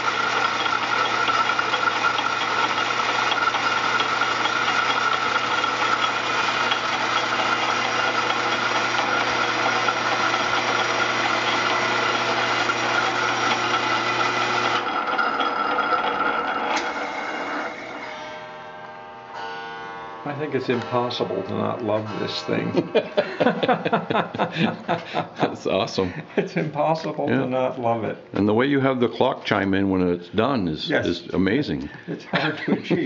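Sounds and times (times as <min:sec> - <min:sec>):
clock chiming: 0:00.0 - 0:24.6
lathe cutting wood: 0:00.0 - 0:25.0.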